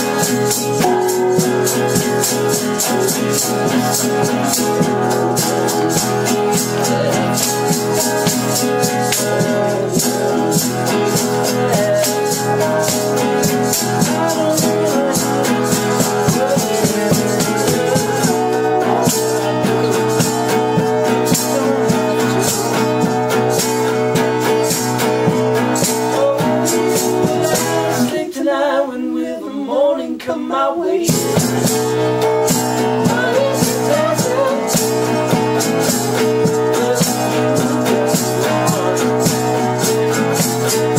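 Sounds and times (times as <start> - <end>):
maraca shaking: 0.0 - 28.4, 31.1 - 40.9
strummed guitars: 0.0 - 28.8, 31.0 - 40.9
person singing: 0.0 - 40.9.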